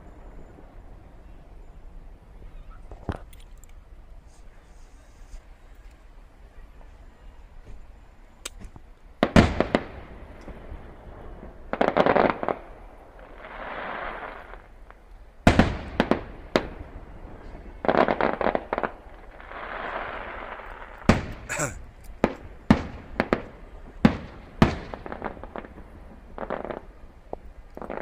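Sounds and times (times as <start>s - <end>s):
firework shells booming: 9.2s - 11.0s, 15.5s - 26.9s
firework crackling: 9.2s - 28.0s.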